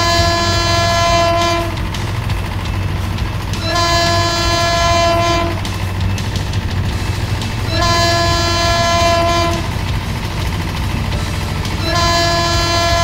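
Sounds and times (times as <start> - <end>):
train horn blasts: 0.0 - 1.8, 3.6 - 5.8, 7.6 - 9.8, 11.8 - 13.0
low rumble: 0.0 - 13.0.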